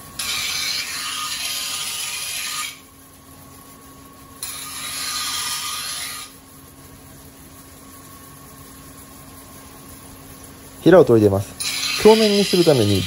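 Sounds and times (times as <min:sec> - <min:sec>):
knife blade grinding on whetstone: 0:00.2 - 0:02.8, 0:04.4 - 0:06.4, 0:11.6 - 0:13.0.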